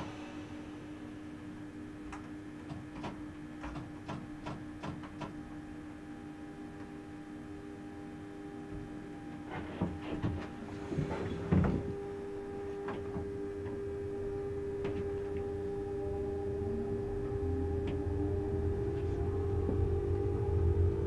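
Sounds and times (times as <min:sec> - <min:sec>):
railcar rumble: 0:00.0 - 0:02.5, 0:09.1 - 0:13.6, 0:14.2 - 0:21.0
electric drive hum: 0:00.0 - 0:21.0.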